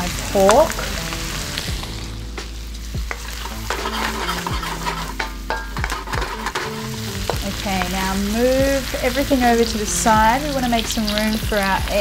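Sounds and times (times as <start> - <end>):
pork sizzling in a wok: 0.0 - 12.0
wooden spoon scraping a wok: 0.7 - 8.2.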